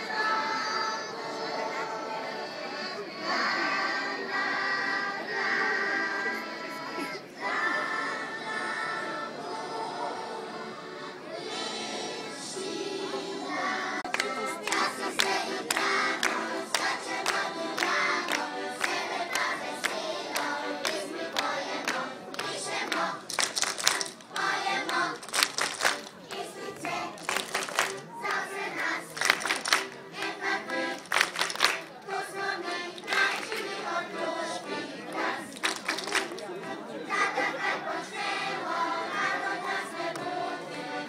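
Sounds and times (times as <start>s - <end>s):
children's choir singing: 0.0s - 41.0s
hand claps: 14.0s - 32.0s, 32.9s - 33.8s, 35.1s - 36.5s.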